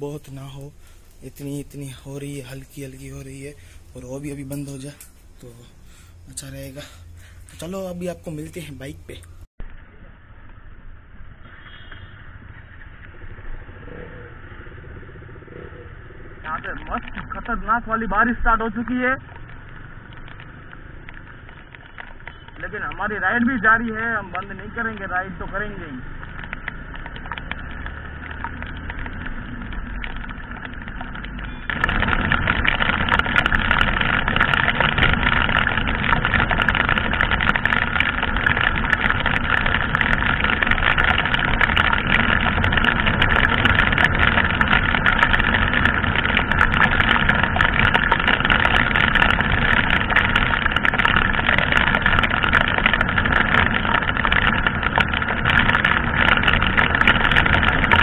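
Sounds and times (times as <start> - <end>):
raindrops ticking: 0.0 - 9.5, 16.4 - 58.0
motorcycle engine drone: 0.0 - 58.0
wind and rain on microphone: 0.0 - 58.0.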